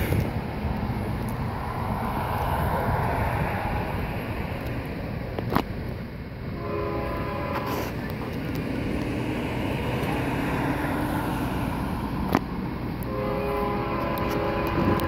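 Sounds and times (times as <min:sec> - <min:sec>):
wind buffeting microphone: 0:00.0 - 0:06.6, 0:14.0 - 0:15.0
distant freight train rumble: 0:00.0 - 0:15.0.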